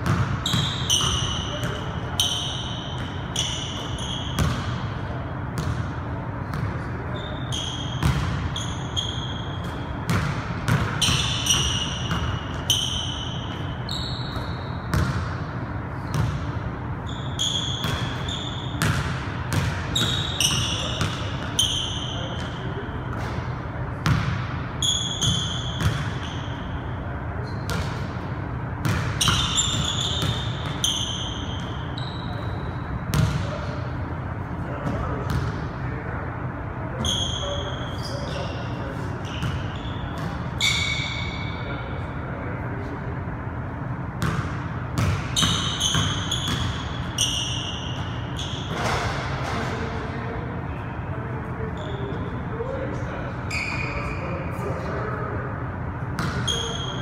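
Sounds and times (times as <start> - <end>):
steady low hum: 0.0 - 53.5
basketball bouncing on wooden floor: 4.4 - 4.7, 14.9 - 15.3, 44.2 - 46.8.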